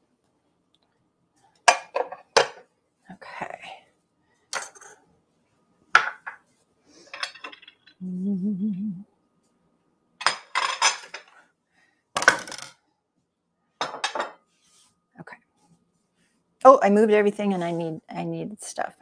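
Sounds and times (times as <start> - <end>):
wavering hum: 8.0 - 9.1
glass dishes clinking: 13.8 - 14.4.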